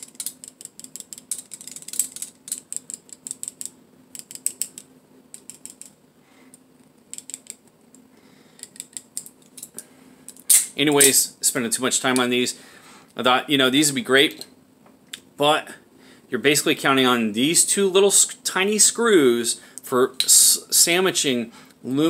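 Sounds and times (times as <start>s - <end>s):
knife blade clicking and rattling: 0.0s - 6.0s.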